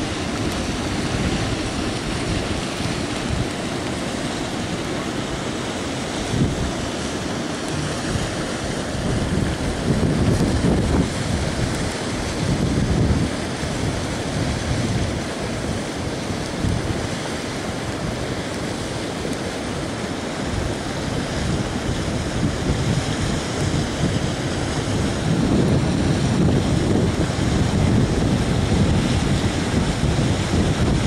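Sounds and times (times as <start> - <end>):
flood torrent rushing: 0.0 - 31.0
wind gusts on microphone: 0.0 - 31.0.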